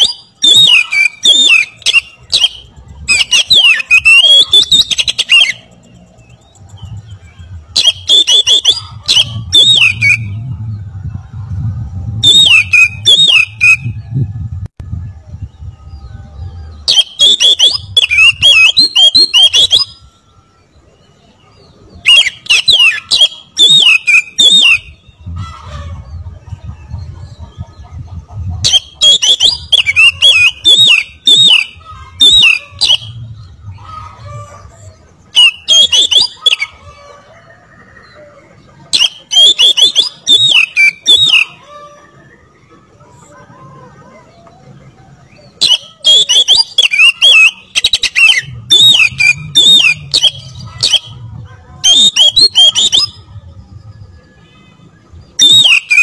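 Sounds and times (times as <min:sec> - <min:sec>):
songbird whistling and clicking: 0:00.0 - 0:05.7, 0:07.8 - 0:10.3, 0:16.9 - 0:20.0, 0:38.9 - 0:41.5, 0:45.4 - 0:51.1, 0:55.4 - 0:56.0.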